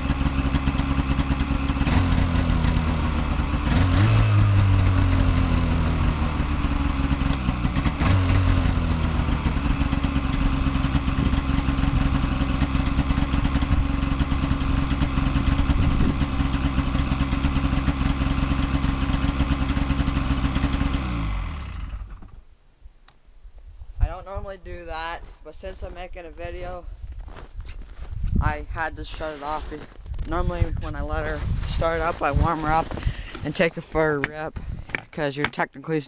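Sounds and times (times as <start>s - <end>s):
engine winding down: 0.0s - 22.4s
snowmobile engine idling: 0.0s - 22.5s, 24.1s - 36.0s.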